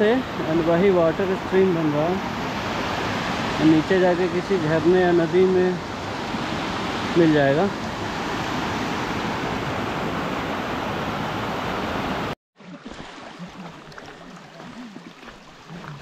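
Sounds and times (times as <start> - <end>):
stream rushing: 0.0 - 16.0.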